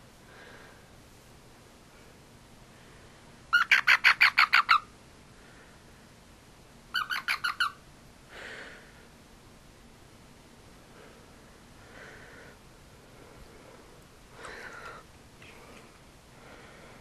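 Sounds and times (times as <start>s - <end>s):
frog chirping: 3.5s - 4.9s, 7.0s - 7.8s.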